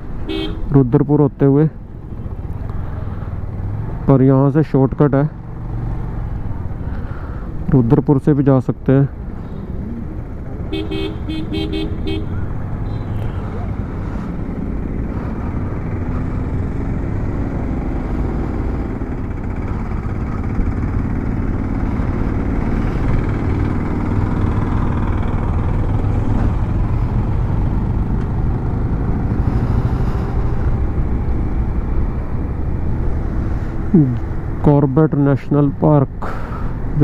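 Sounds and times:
wind and road noise: 0.0 - 37.0
motorcycle engine running: 9.5 - 32.9.

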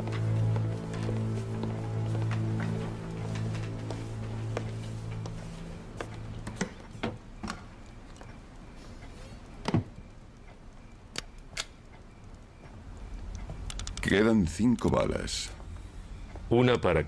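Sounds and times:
faint room noise: 0.0 - 17.0
sharp clicks and knocks: 11.1 - 14.1.

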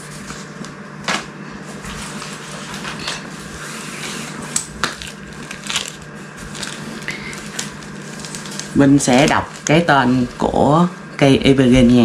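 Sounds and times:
steady low hum: 0.0 - 12.0
packaging crinkling: 4.5 - 10.5.

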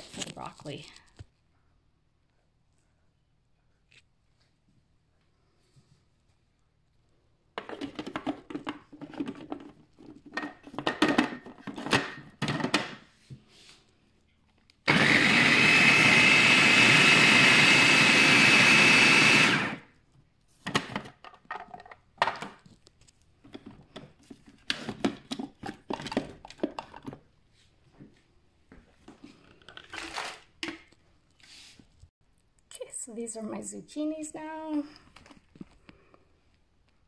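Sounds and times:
food processor motor whining: 14.9 - 19.9.

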